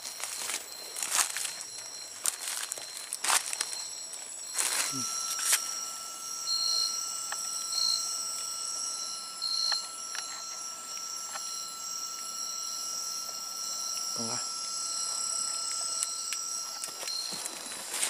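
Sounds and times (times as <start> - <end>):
footsteps rustling through undergrowth: 0.0 - 5.7
low steady tone: 0.0 - 18.0
night insects chorus: 0.0 - 18.0.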